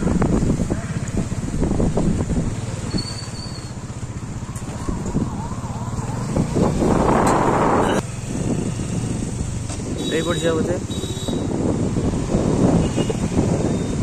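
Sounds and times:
street traffic: 0.0s - 14.0s
loud rush of noise: 4.8s - 9.0s.

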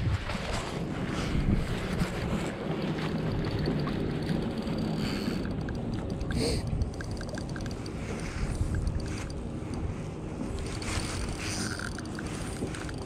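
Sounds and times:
water moving around kayak: 0.0s - 13.0s
wind buffeting microphone: 0.0s - 13.0s
faint light ticks: 3.5s - 13.0s.

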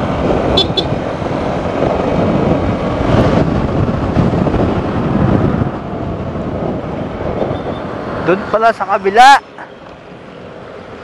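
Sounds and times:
wind over microphone: 0.0s - 8.4s
traffic: 0.0s - 11.0s.

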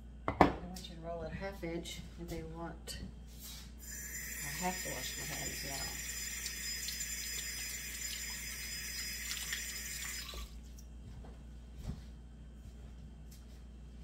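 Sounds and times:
tap water running: 3.8s - 10.6s.

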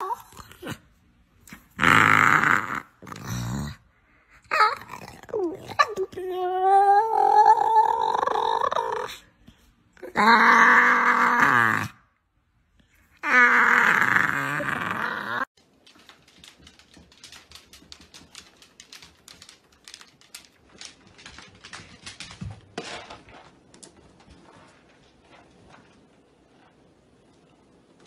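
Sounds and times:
dog groaning: 1.5s - 3.8s, 13.2s - 15.5s
dog claws clicking on wooden floor: 15.6s - 24.4s.

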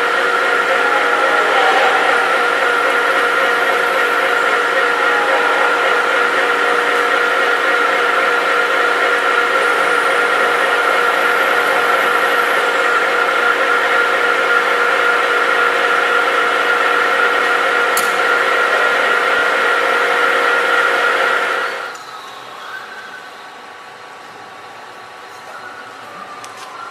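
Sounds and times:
lathe running with whine: 0.0s - 26.9s.

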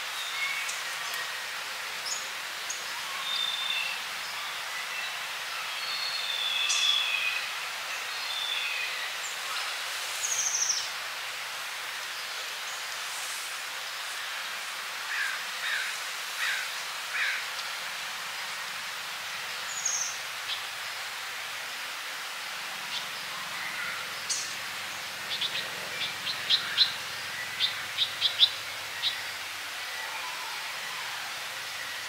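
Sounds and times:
steady background hiss: 0.0s - 32.0s
songbird call notes: 2.0s - 10.9s, 22.9s - 32.0s.

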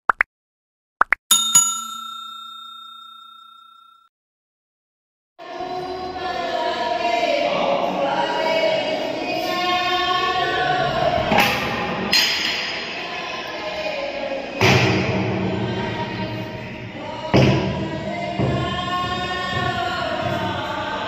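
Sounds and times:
background music with singing: 5.4s - 21.0s.

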